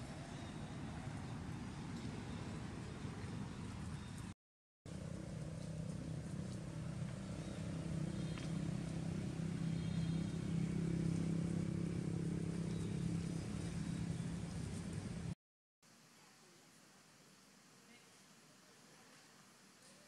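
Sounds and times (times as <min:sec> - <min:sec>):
vehicle engine droning: 0:04.9 - 0:15.4.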